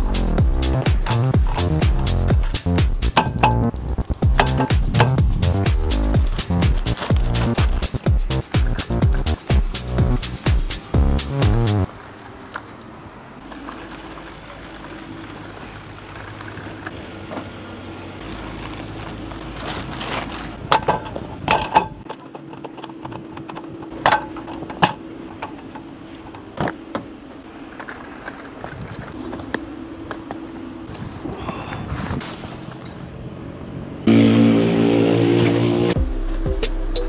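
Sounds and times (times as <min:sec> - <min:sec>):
background music: 0:00.0 - 0:11.9, 0:34.9 - 0:37.0
gear knocking and clattering: 0:00.0 - 0:11.9, 0:19.6 - 0:29.5
steady low hum: 0:00.0 - 0:11.9.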